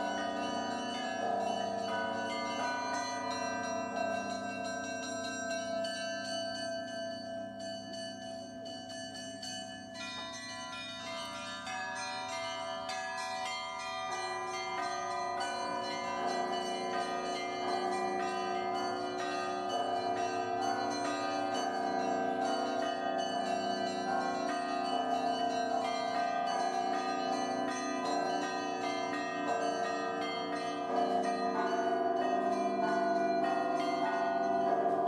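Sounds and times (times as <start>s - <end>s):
bells ringing a peal: 0.0s - 35.0s.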